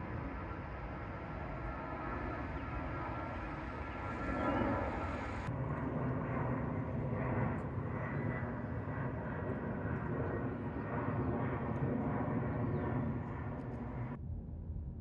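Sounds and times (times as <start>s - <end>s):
high engine whine: 0.0s - 5.5s
jet airliner flying overhead: 0.0s - 15.0s.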